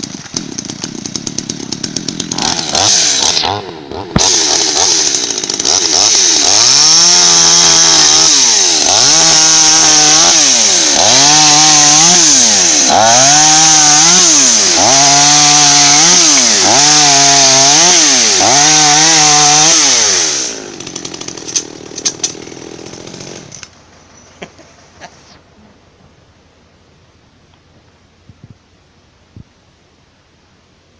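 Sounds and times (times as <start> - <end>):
chainsaw cutting a log: 0.0 - 23.7
chainsaw idling: 0.0 - 23.8.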